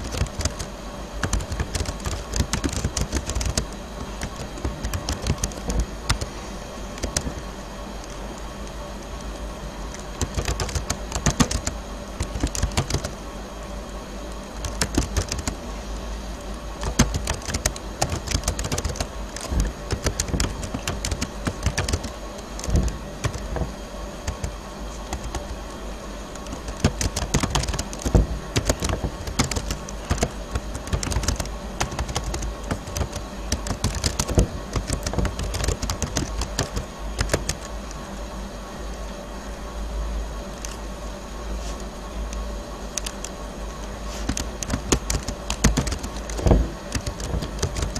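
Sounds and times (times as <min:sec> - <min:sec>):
keyboard key clicks: 0:00.0 - 0:06.3, 0:10.0 - 0:13.1, 0:14.6 - 0:15.6, 0:16.8 - 0:23.7, 0:24.3 - 0:25.6, 0:26.4 - 0:37.7, 0:44.3 - 0:47.9
steady background hum: 0:00.0 - 0:47.9.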